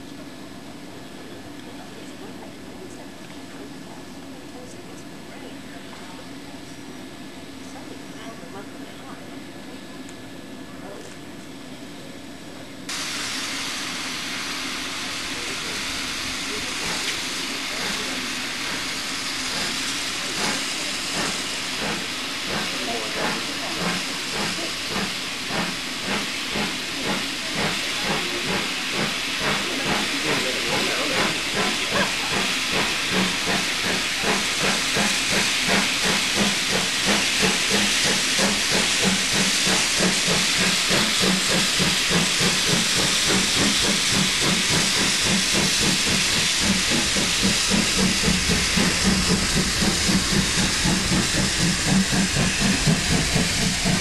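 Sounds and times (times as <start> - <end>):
steam locomotive chuffing: 12.8 - 54.0
steam hissing: 12.9 - 54.0.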